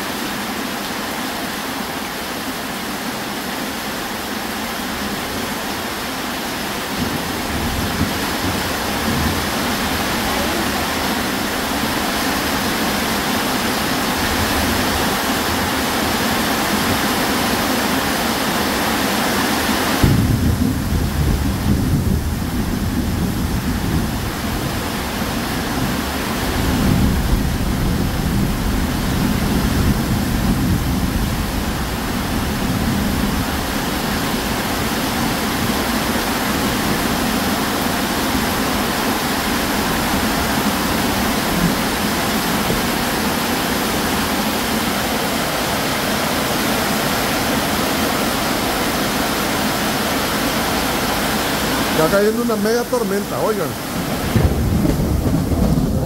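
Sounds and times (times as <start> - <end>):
heavy rain: 0.0 - 56.0
low rumble: 54.2 - 56.0.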